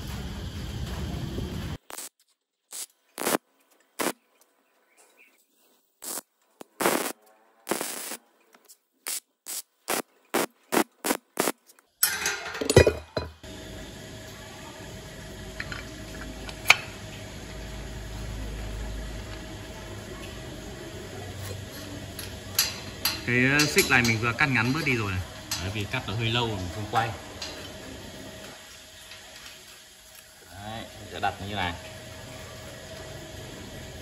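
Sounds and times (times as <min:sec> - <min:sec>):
low workshop hum: 0:00.0 - 0:34.0
short hissing bursts: 0:02.7 - 0:03.4, 0:06.0 - 0:08.2, 0:09.0 - 0:11.6
metal clanks: 0:12.0 - 0:13.4.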